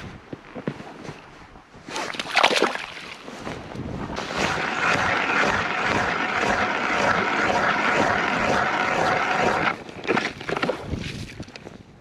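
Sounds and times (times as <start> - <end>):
ice auger drill whining and grinding: 4.2 - 10.7.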